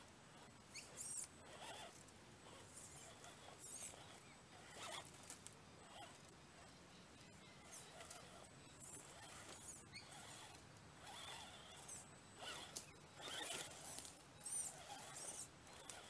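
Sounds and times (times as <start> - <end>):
electric motors whining: 7.6 - 16.0.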